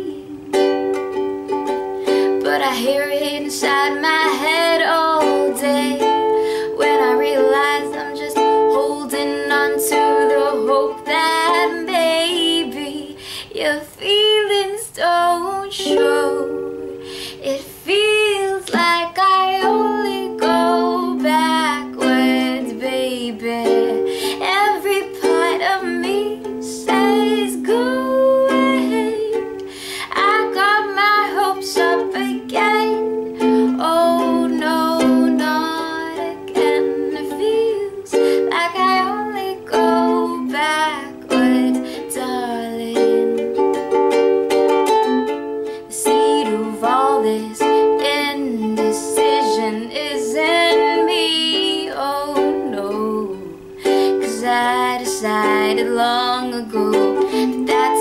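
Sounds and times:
person singing: 0.0s - 1.0s, 1.6s - 58.0s
ukulele strumming chords: 0.0s - 58.0s.

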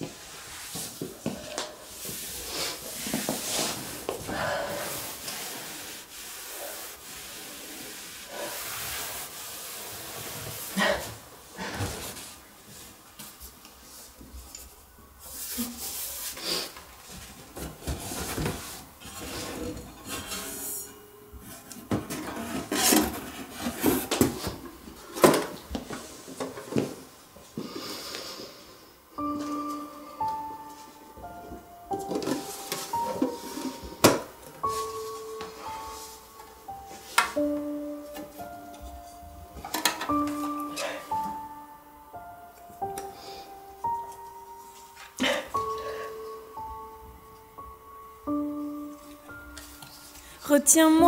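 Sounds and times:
objects rustling in cardboard boxes: 0.0s - 14.2s, 15.3s - 27.2s, 31.9s - 41.6s
music: 19.2s - 24.6s, 27.7s - 51.0s.

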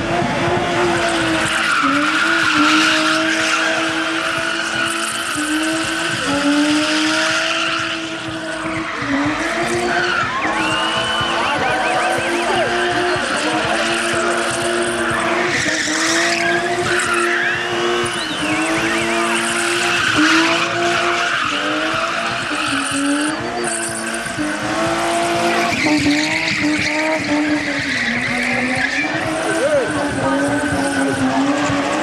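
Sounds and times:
car engine at high revs: 0.0s - 32.0s
tyres squealing: 1.1s - 32.0s.

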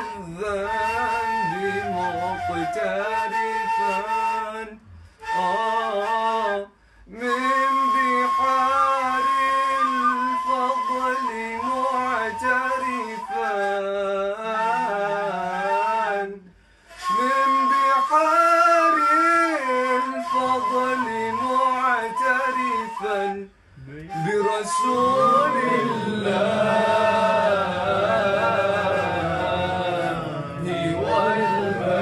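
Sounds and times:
person singing unaccompanied: 0.0s - 4.0s, 23.9s - 32.0s.

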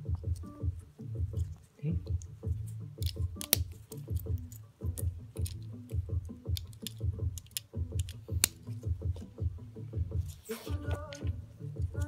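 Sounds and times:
clicks of plastic pieces: 3.0s - 8.6s.

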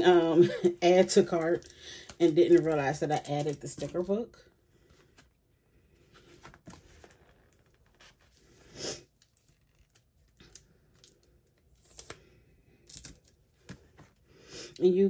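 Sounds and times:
plastic packs rustling: 0.0s - 4.2s.

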